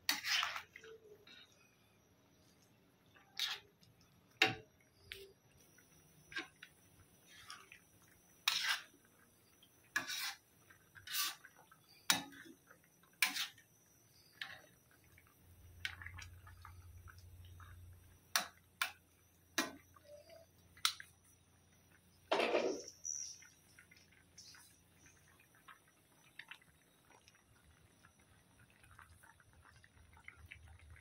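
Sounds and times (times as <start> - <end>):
metal ladle scraping steel pan: 0.1 - 0.8, 8.4 - 8.9, 10.0 - 10.4, 11.0 - 11.4, 13.2 - 13.6.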